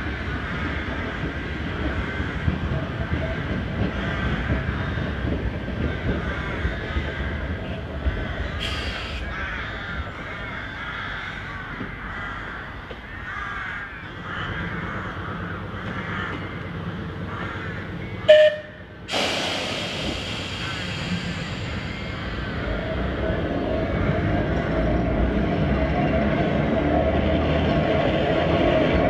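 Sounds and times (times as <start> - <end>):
crows cawing: 0.0 - 2.6, 3.9 - 5.2, 5.9 - 16.6, 17.2 - 18.4
low rumble of electric tram: 0.0 - 29.0
hiss: 8.6 - 9.3, 19.1 - 22.8.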